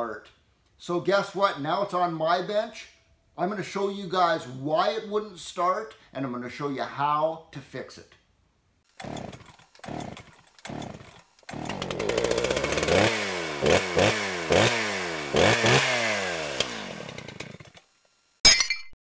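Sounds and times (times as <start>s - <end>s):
chainsaw engine sputtering and revving: 8.9s - 18.0s.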